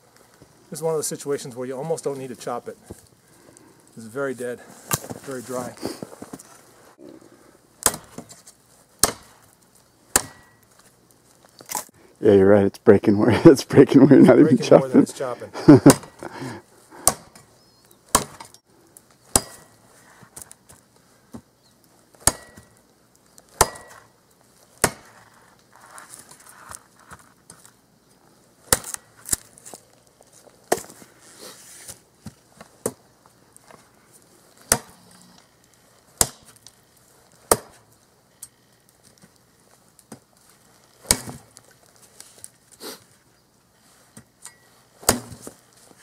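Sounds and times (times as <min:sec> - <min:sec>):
shovel blade chopping dry branch: 0:07.8 - 0:08.4, 0:09.0 - 0:10.7, 0:17.0 - 0:17.5, 0:18.1 - 0:18.5, 0:19.3 - 0:19.8, 0:22.2 - 0:22.8, 0:23.5 - 0:24.1, 0:24.8 - 0:25.2, 0:28.7 - 0:29.6, 0:34.6 - 0:35.0, 0:36.2 - 0:36.7, 0:37.3 - 0:37.9, 0:40.9 - 0:41.6, 0:44.4 - 0:45.6.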